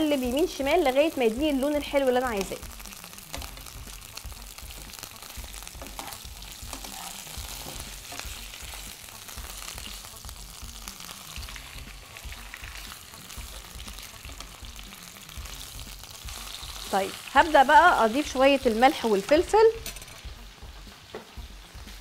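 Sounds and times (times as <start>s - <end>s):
meat sizzling in a frying pan: 0.0s - 22.0s
metal spoon tapping a pan: 5.8s - 8.3s, 19.2s - 20.3s.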